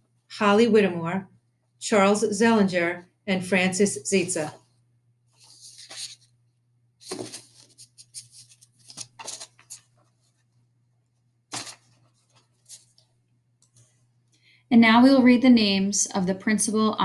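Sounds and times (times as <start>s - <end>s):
handling rustles and clicks: 7.1s - 10.2s.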